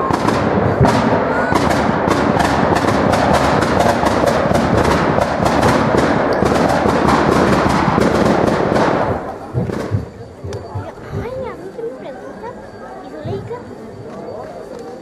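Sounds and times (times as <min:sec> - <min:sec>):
firecrackers crackling: 0:00.0 - 0:11.6.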